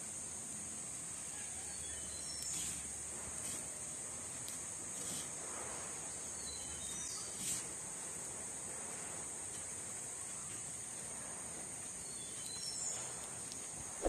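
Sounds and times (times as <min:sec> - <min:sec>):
insects droning: 0:00.0 - 0:14.0
faint bird chirps: 0:01.3 - 0:02.8, 0:06.3 - 0:07.6, 0:12.0 - 0:13.2.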